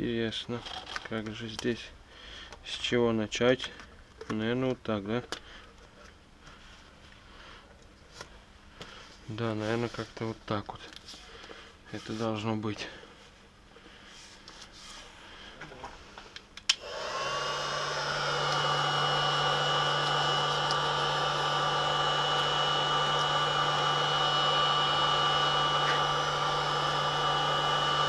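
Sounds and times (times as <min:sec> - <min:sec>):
blower fan whining: 0:13.7 - 0:28.0
hot-air blower switch click: 0:16.6 - 0:17.2, 0:18.3 - 0:24.3.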